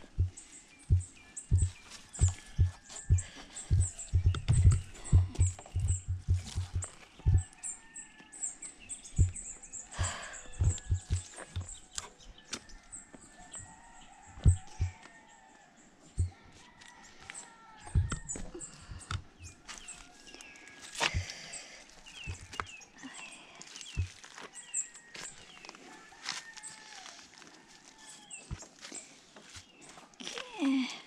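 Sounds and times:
footsteps and scuffs: 0.0 - 7.6, 9.2 - 12.0, 16.2 - 22.8, 23.7 - 30.1
birds chirping: 0.0 - 31.0.

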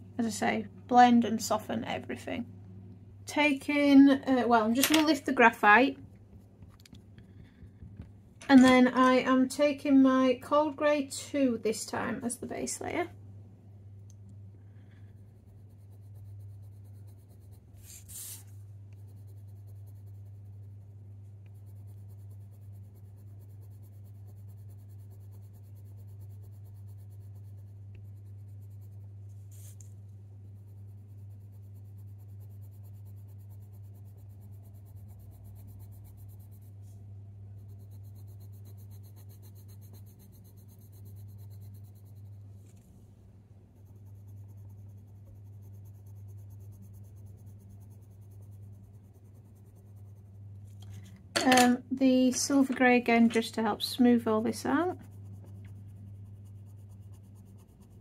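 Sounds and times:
steady low hum: 0.0 - 58.0
pencil scratching on paper: 14.8 - 42.4, 43.7 - 50.8, 53.1 - 58.0.

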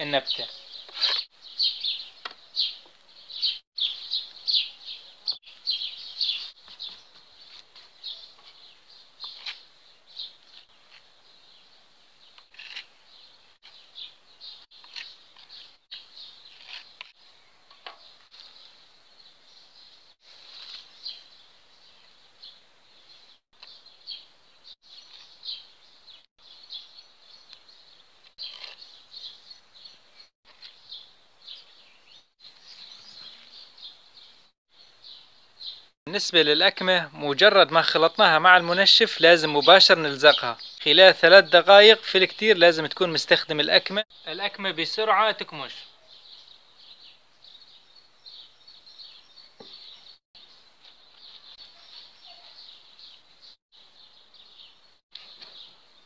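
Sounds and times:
birds chirping: 0.0 - 56.0
putty knife scraping: 0.9 - 1.3, 12.4 - 12.9, 16.5 - 17.2.

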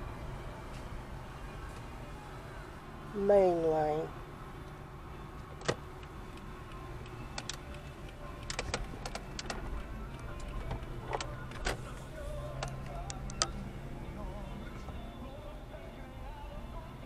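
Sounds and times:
sharp clicks: 5.6 - 11.8, 12.5 - 13.6.

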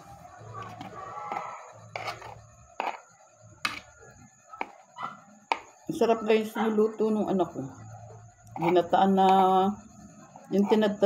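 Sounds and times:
metal spoon scraping a plate: 0.6 - 3.9, 8.5 - 11.0.

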